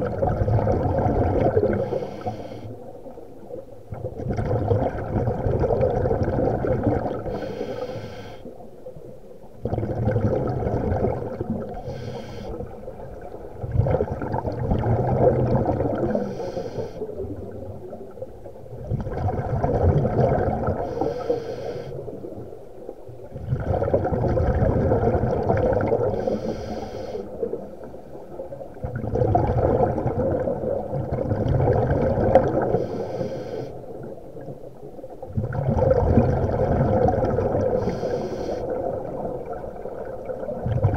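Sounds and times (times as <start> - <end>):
bubbling exhaust underwater: 0.0 - 40.9
scuba regulator breathing: 1.7 - 2.9, 7.2 - 8.5, 11.7 - 12.8, 16.0 - 17.2, 20.8 - 22.2, 26.0 - 27.6, 32.6 - 33.9, 37.6 - 39.0.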